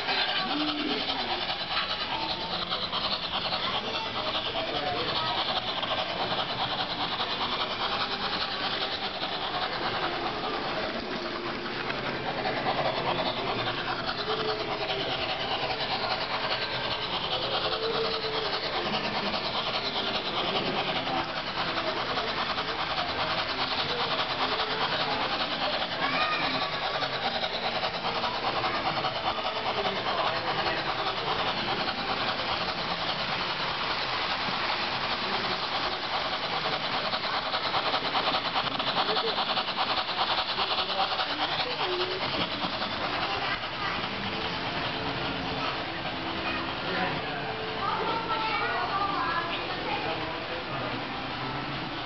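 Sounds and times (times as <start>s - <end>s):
model trains whirring on rails: 0.0s - 52.0s
murmur of voices: 0.0s - 52.0s.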